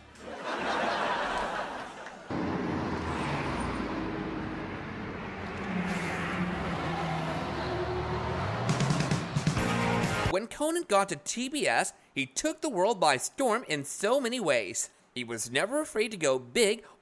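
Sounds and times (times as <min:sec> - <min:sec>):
audience laughter: 0:00.2 - 0:02.3
street traffic passing: 0:00.2 - 0:10.3.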